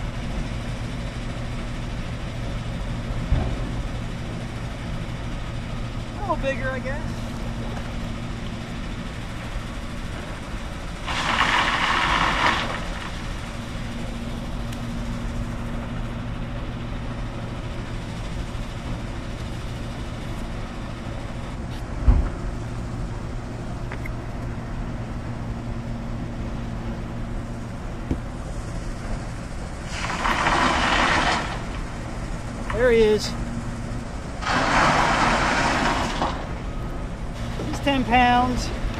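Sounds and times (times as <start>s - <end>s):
construction machinery hum: 0.0s - 38.9s
low thump: 22.0s - 22.4s.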